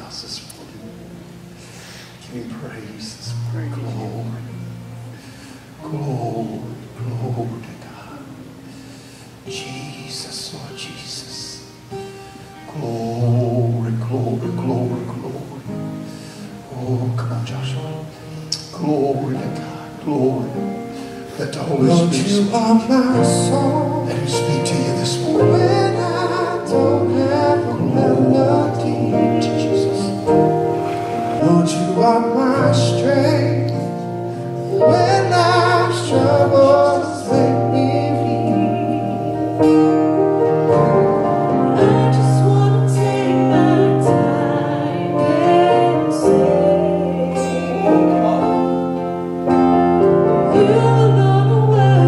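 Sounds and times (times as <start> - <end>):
worship band playing: 0.0 - 52.0
person singing: 16.6 - 30.7, 31.3 - 52.0.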